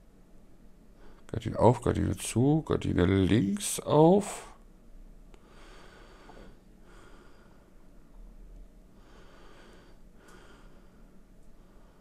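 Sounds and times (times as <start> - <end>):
faint steady hum: 0.0 - 12.0
man breathing through nose: 5.4 - 7.8, 9.0 - 12.0.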